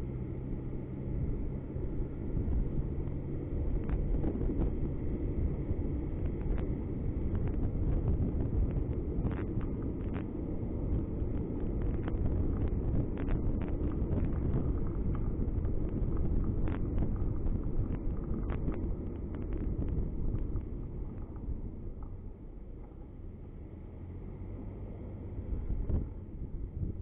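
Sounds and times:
car driving low rumble: 0.0 - 27.0
light ticks and rattles: 6.2 - 23.1.

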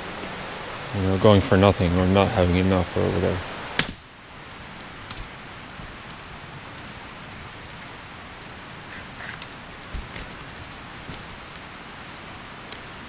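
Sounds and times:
outdoor hiss: 0.0 - 13.0
wooden branches clicking: 3.8 - 4.1, 4.7 - 11.7.

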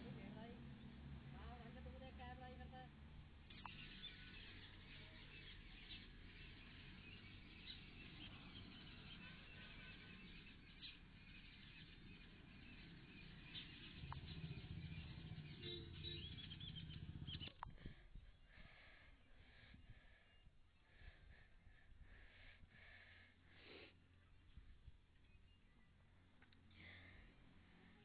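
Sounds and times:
small birds chirping: 0.0 - 28.0
low rumble: 12.0 - 22.9.

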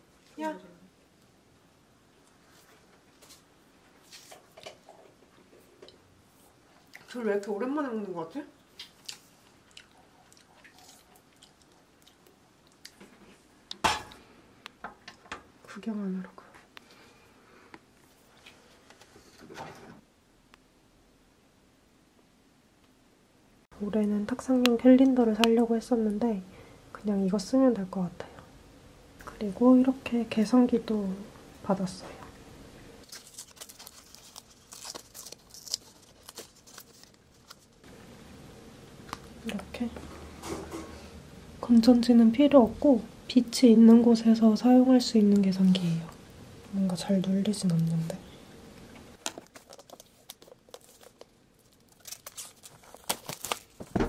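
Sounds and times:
chewing fruit: 8.7 - 13.0
packaging being torn open: 33.0 - 37.8, 49.2 - 53.9.

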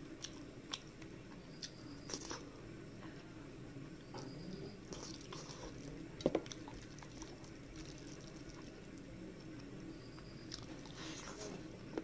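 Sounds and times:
wet chewing: 4.9 - 9.6, 10.5 - 11.6.

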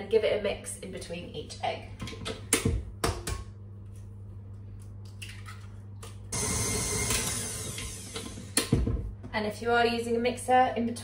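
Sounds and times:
stand mixer running: 6.3 - 8.8.

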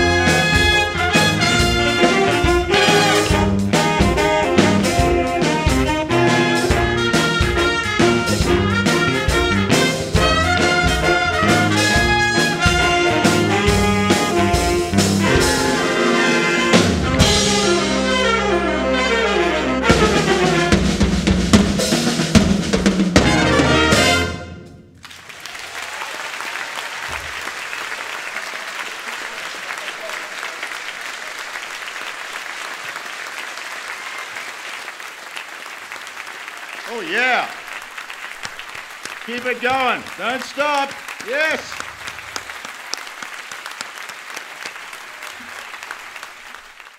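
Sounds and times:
audience applauding: 0.0 - 3.5, 6.1 - 17.3, 25.0 - 46.9
big band playing swing: 0.0 - 25.1, 27.0 - 46.8.

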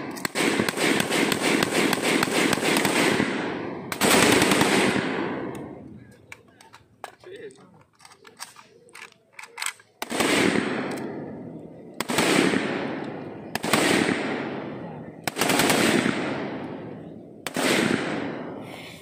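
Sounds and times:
rifle shots with echo: 0.0 - 5.9, 9.5 - 18.8.

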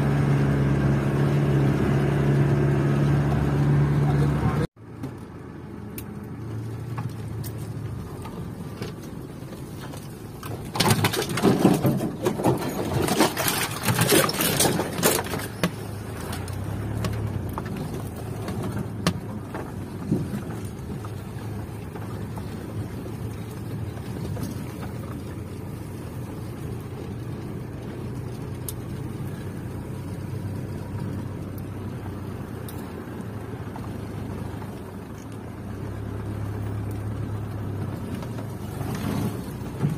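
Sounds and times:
car engine running: 0.0 - 39.9
rough knocking and rattling: 6.8 - 29.8.

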